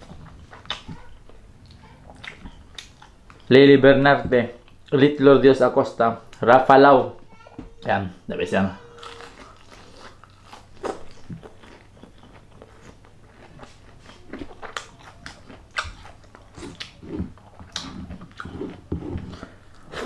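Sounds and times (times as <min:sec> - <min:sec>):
soft wet chewing: 0:00.0 - 0:03.5, 0:09.0 - 0:20.0
crunching of crispy food: 0:09.0 - 0:18.8.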